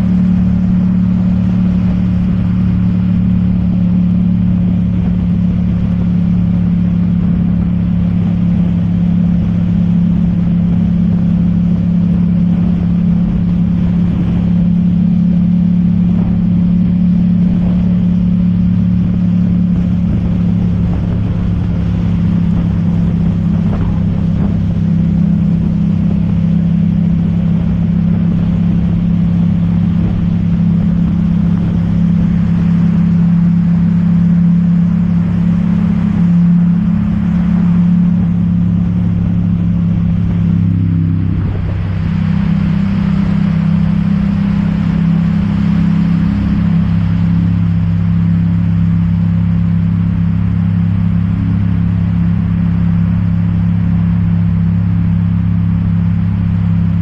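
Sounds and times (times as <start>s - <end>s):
motorcycle engine cruising: 0.0s - 57.0s
wind rushing: 13.7s - 33.2s, 36.9s - 45.8s.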